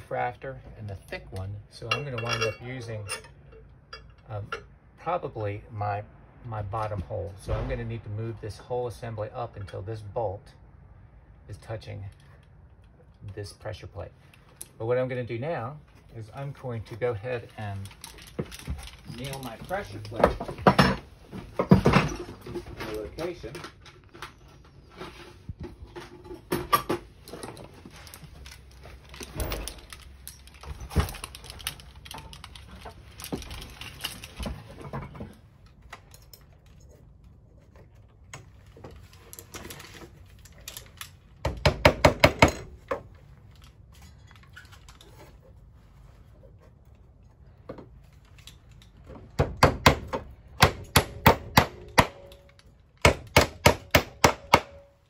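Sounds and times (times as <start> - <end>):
clicks and rustling: 16.7 - 41.4.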